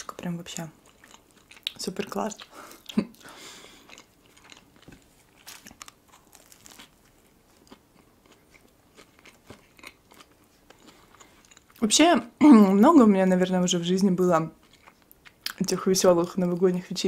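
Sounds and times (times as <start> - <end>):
biting and chewing: 0.8 - 11.8.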